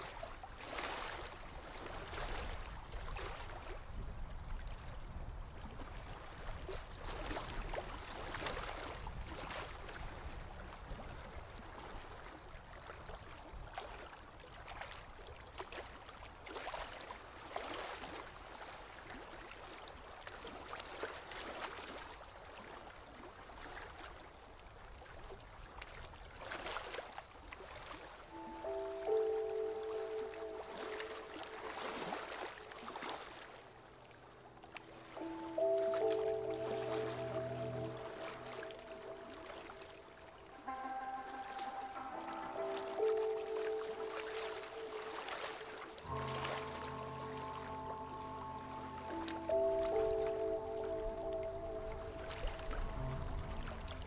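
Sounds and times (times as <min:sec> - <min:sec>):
low steady rumble: 0:50.9 - 0:54.0.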